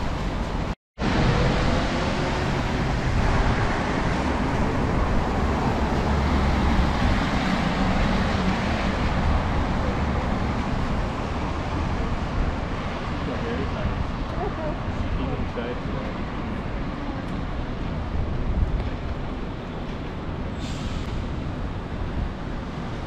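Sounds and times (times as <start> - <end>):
low traffic rumble: 0.0 - 23.0
tyres hissing on wet road: 20.5 - 21.5.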